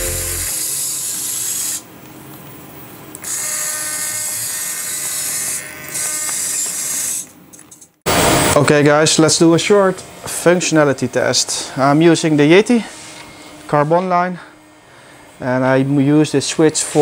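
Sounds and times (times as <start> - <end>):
small servo motors whining: 0.0 - 1.9, 3.2 - 7.3.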